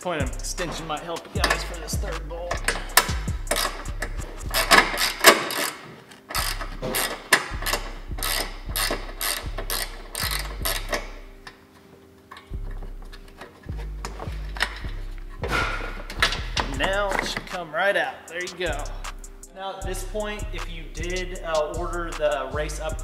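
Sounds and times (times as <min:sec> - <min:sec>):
ratchet clicking: 0:00.2 - 0:11.2, 0:18.3 - 0:19.5.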